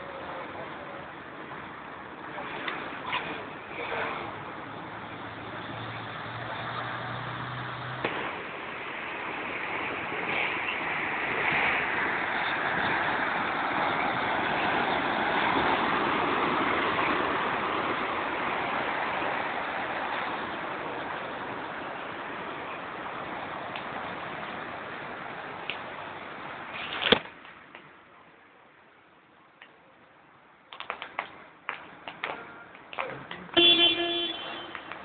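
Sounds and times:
floodwater rushing: 0:07.2 - 0:26.7.

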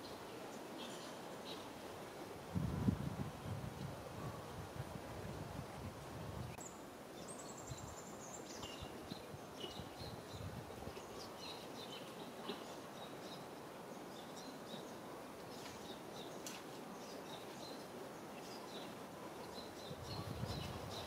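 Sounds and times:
steady outdoor hiss: 0:00.0 - 0:21.0
small birds chirping: 0:06.6 - 0:21.0.

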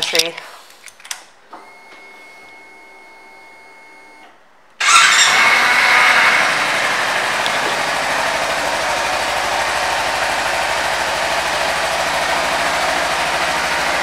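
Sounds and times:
fuel pump whir: 0:00.4 - 0:14.0
motorcycle engine starting and idling: 0:04.8 - 0:14.0.

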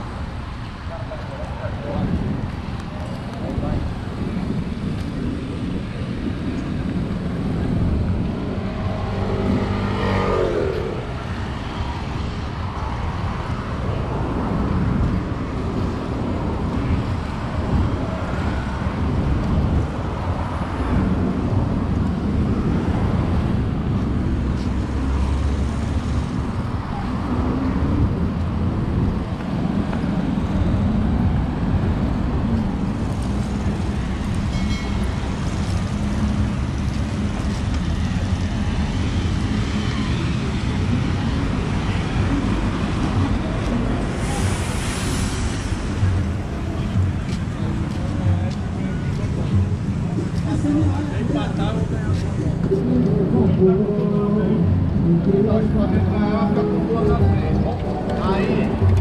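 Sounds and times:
road traffic: 0:00.0 - 0:59.0.

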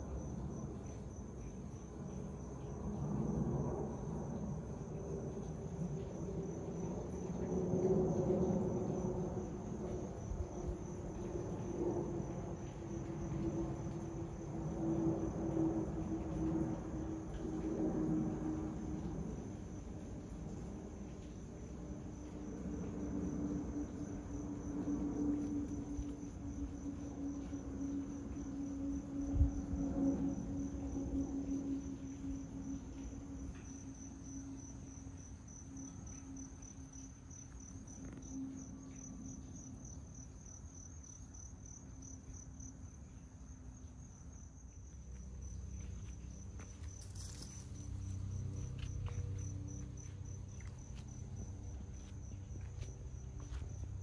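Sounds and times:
distant jet engine rumble: 0:00.0 - 0:39.8, 0:44.7 - 0:54.0
insects trilling: 0:00.0 - 0:54.0.

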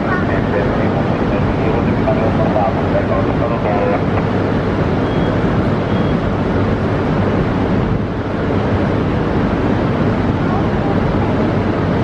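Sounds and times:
train rumble and hiss: 0:00.0 - 0:12.0.

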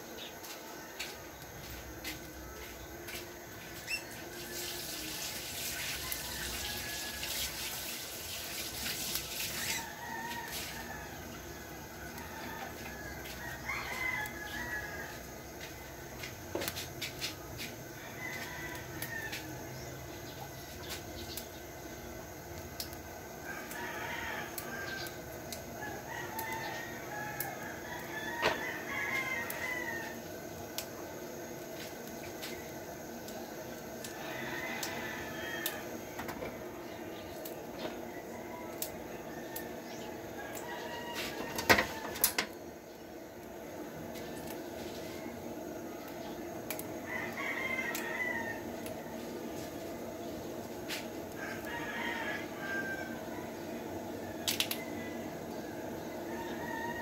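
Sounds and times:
rooster crowing: 0:00.3 - 0:21.0, 0:23.2 - 0:57.0
hiss: 0:04.2 - 0:11.1.

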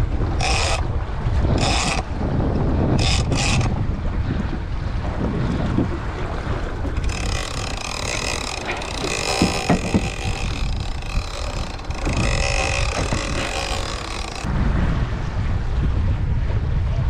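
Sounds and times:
fishing reel whirring: 0:00.0 - 0:03.9, 0:06.9 - 0:14.5
water washing against hull: 0:00.0 - 0:16.8
wind buffeting microphone: 0:00.0 - 0:17.0
fishing reel clicks: 0:00.4 - 0:00.9, 0:01.5 - 0:02.1, 0:03.0 - 0:03.7, 0:07.0 - 0:14.5.

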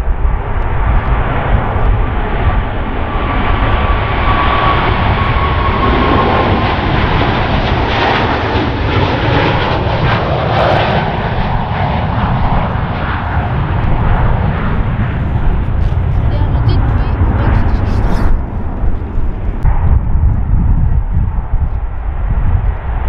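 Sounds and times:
high jet engine whine: 0:00.0 - 0:23.0
jet engines rumbling: 0:00.0 - 0:23.0.

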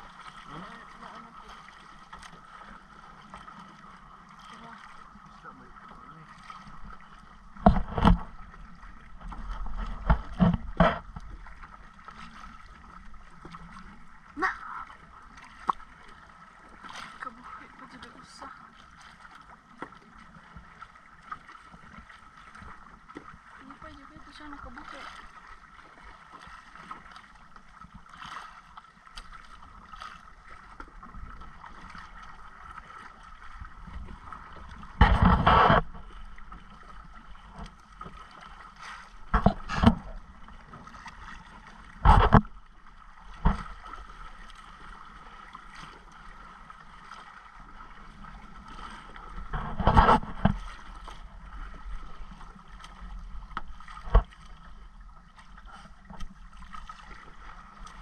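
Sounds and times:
water sloshing against hull: 0:00.0 - 0:58.0.

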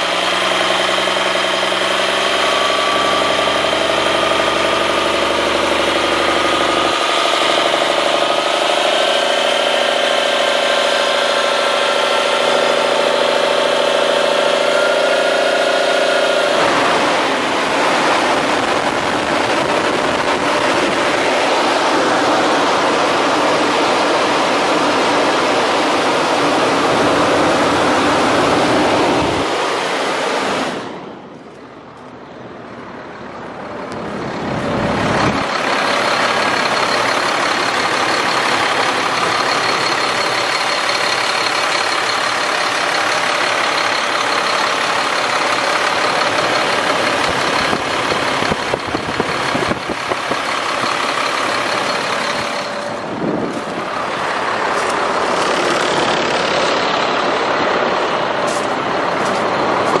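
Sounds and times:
diesel truck engine idling: 0:00.0 - 1:00.0.

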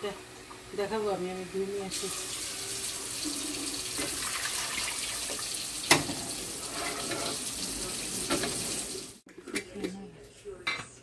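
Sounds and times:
tap running into sink: 0:03.9 - 0:06.4, 0:08.2 - 0:08.8.

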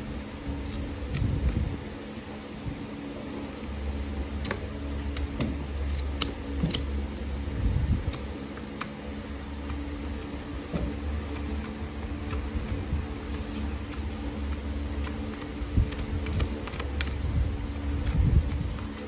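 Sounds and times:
low hum: 0:00.0 - 0:19.0
hoof tools clicking and scraping: 0:04.3 - 0:07.3, 0:08.0 - 0:19.0.

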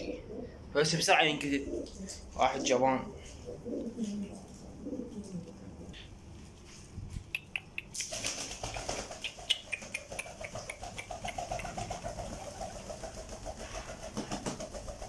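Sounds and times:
pigeon wings beating: 0:07.9 - 0:15.0.

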